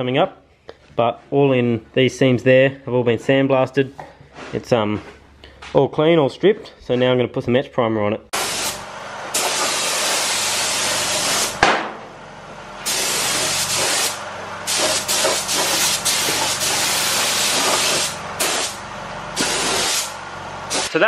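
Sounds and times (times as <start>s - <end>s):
spray gun hissing: 8.4s - 8.8s, 9.4s - 11.6s, 12.8s - 18.8s, 19.4s - 21.0s
sharp knock: 11.6s - 12.0s.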